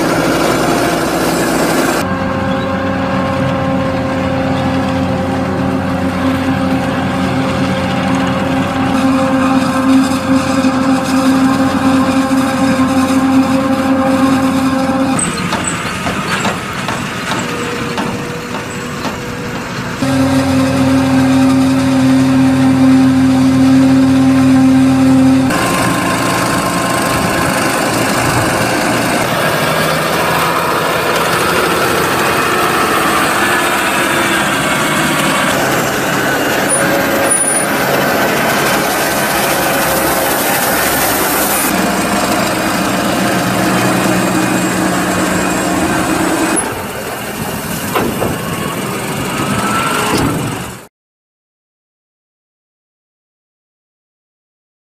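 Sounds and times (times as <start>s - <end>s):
forage wagon unloading silage: 0.0s - 50.8s
forage harvester: 0.0s - 50.9s
tractor engine running: 0.0s - 50.9s.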